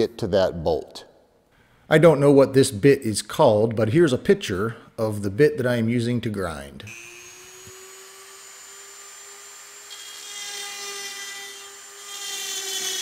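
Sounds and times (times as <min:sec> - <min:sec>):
rotary tool grinding metal: 0:06.9 - 0:13.0.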